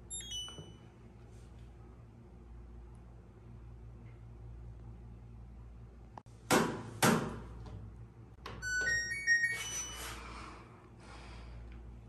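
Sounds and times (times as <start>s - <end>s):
washing machine panel beeping: 0.1s - 0.9s, 8.5s - 10.1s.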